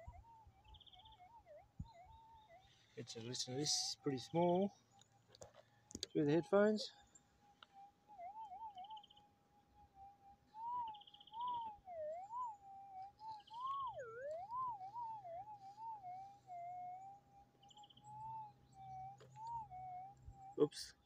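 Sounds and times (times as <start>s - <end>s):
metal detector wavering tone: 10.6s - 21.0s.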